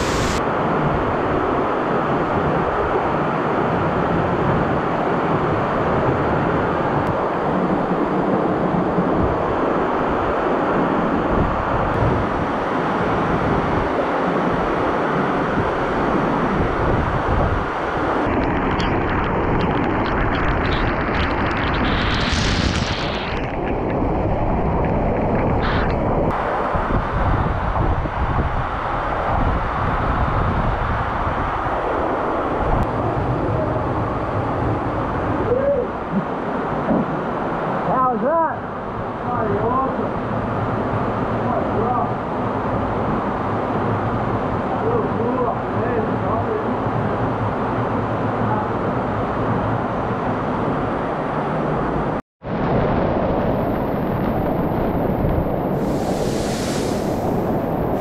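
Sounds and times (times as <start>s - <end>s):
waterfall rushing: 0.0s - 0.4s, 53.5s - 58.0s
waterfall rushing onto rock: 0.0s - 0.4s, 18.3s - 25.8s, 53.5s - 58.0s.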